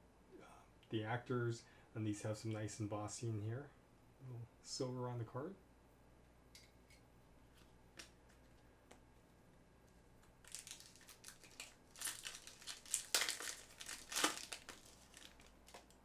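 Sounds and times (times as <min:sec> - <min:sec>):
foil wrapper crinkling: 0:10.4 - 0:16.0.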